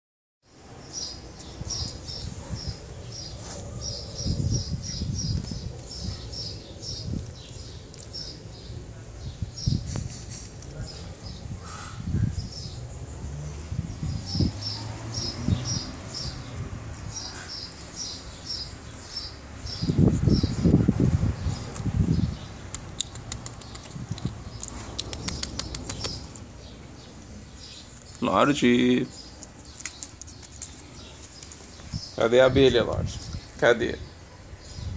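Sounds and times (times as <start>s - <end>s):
small bird chirping: 21.4s - 28.4s
dog licking its lips: 22.7s - 26.4s.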